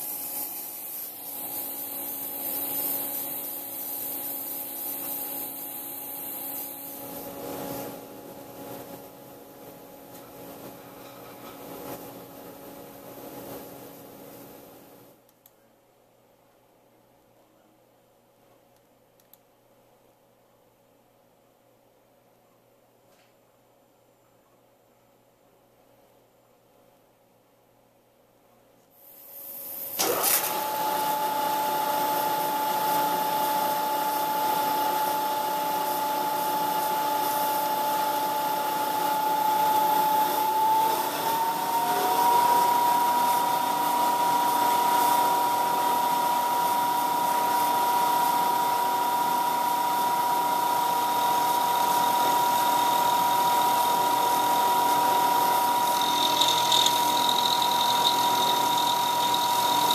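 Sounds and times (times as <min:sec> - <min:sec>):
coolant spray hissing: 0:00.0 - 0:07.1, 0:51.3 - 0:59.9
milling machine spindle whine: 0:30.0 - 0:59.9.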